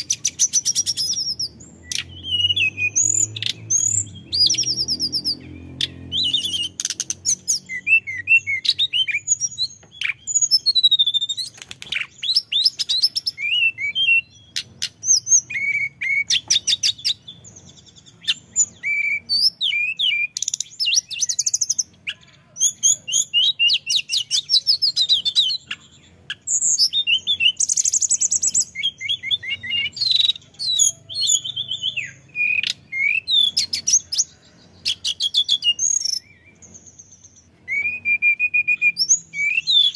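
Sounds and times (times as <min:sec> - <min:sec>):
bird singing whistles and trills: 0:00.0 - 0:39.9.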